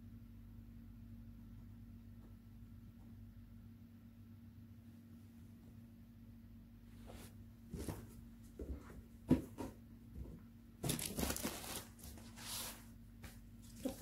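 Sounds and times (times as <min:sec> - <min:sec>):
wrapping crinkling and tearing: 0:10.8 - 0:12.7.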